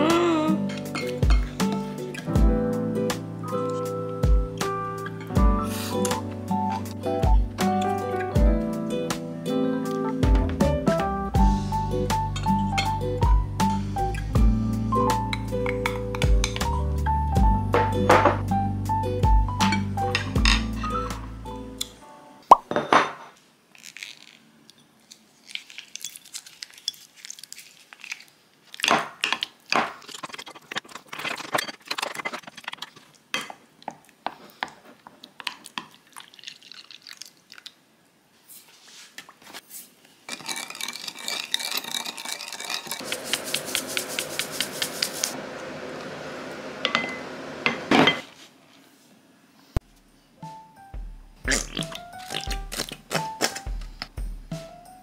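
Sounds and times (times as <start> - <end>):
dishes and utensils clinking: 0.6 - 2.3, 12.3 - 13.0, 15.3 - 16.8, 17.8 - 18.4, 19.6 - 21.0, 46.8 - 48.3.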